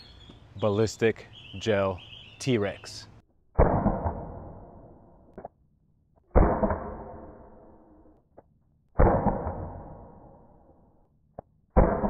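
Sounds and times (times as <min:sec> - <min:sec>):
launcher shot report: 0:03.6 - 0:04.8, 0:06.3 - 0:07.4, 0:09.0 - 0:10.3.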